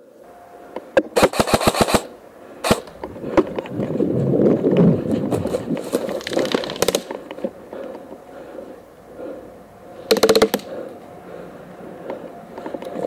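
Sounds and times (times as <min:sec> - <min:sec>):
sharp clicks: 0:05.8 - 0:08.1.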